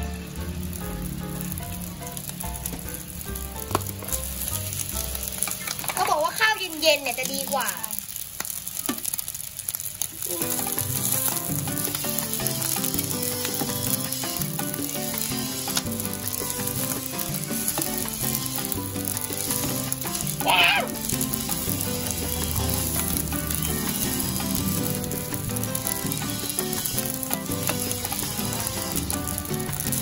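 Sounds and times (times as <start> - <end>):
rice sizzling in a pan: 0.0 - 30.0
spatula scraping a pan: 11.1 - 30.0.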